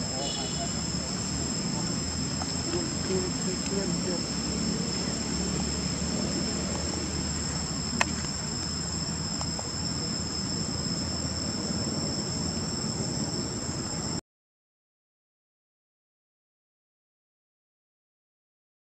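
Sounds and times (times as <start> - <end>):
insects droning: 0.0 - 14.2.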